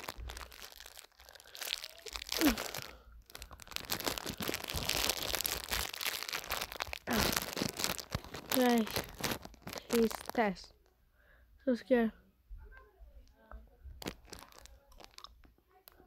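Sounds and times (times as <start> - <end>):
plastic wrapper crinkling: 0.0 - 10.7, 14.0 - 16.0.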